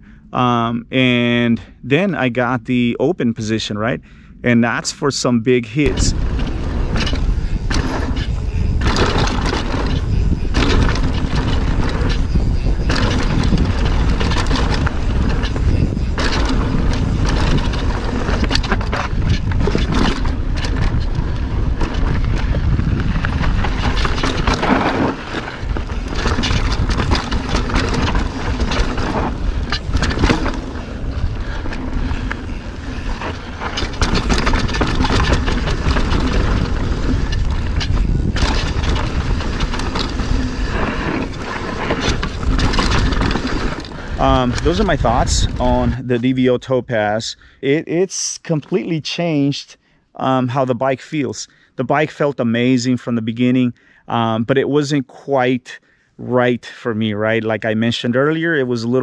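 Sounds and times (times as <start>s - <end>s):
steady low rumble: 0.0s - 46.8s
tyres crunching over dirt and stones: 5.8s - 45.9s
bike knocking and rattling: 5.8s - 46.6s.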